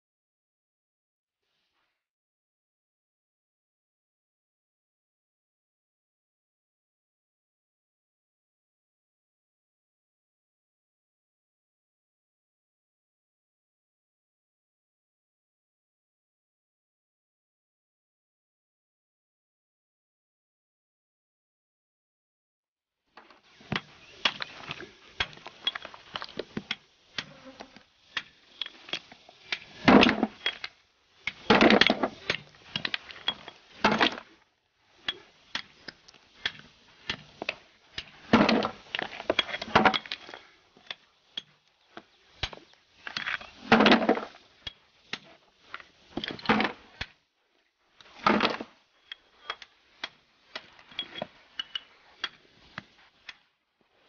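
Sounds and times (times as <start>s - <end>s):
steel blade scraping stone: 23.7s - 34.4s, 35.0s - 41.6s, 42.4s - 45.4s, 48.2s - 50.2s, 50.8s - 52.4s
stone clicks and ticks: 23.7s - 34.4s, 35.0s - 47.2s, 48.0s - 53.5s.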